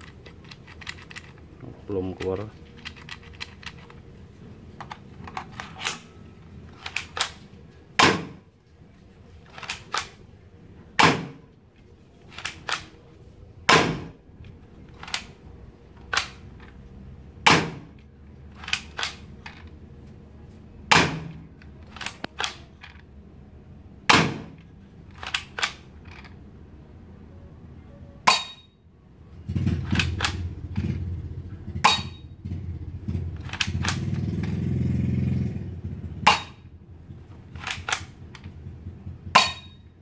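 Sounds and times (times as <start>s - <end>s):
toy pistol firing cracks: 6.8s - 7.4s, 16.0s - 16.4s, 18.6s - 19.3s, 20.9s - 23.0s, 24.1s - 25.9s, 37.6s - 38.2s
pistol slide clicks: 12.4s - 13.0s, 16.0s - 16.4s, 25.1s - 26.3s, 37.6s - 38.5s.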